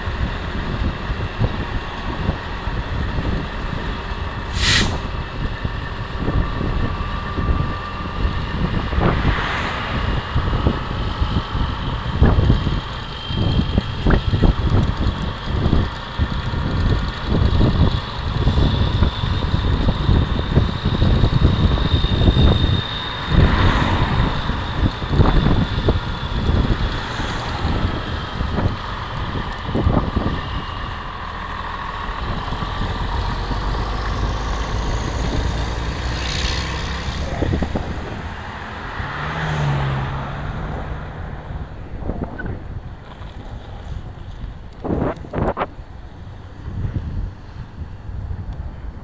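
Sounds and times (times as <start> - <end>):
wind and road rumble: 0.0 - 49.0
air brakes hissing: 4.4 - 5.2
car passing whoosh: 4.4 - 5.2, 8.5 - 12.4, 22.1 - 28.8, 33.3 - 44.2.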